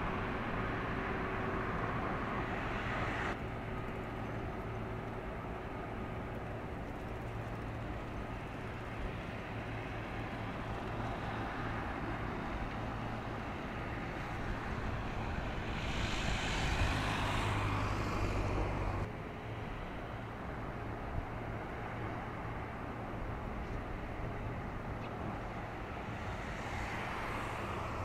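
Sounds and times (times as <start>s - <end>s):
low engine hum: 0.0s - 28.0s
traffic noise: 0.0s - 28.0s
road vehicle passing close: 11.3s - 19.1s.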